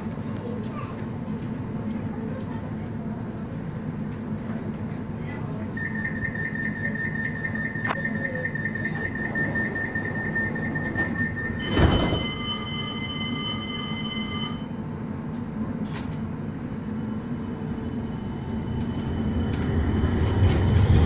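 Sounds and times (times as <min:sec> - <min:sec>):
rapid door-warning beeping: 0:05.8 - 0:14.6
doors closing with a thump: 0:10.8 - 0:12.4.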